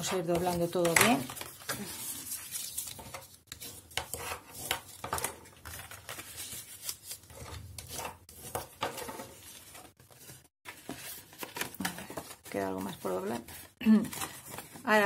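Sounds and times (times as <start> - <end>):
paper rubbing and rustling: 0.0 - 15.0
sharp paper crackles: 0.3 - 3.8, 4.5 - 7.5.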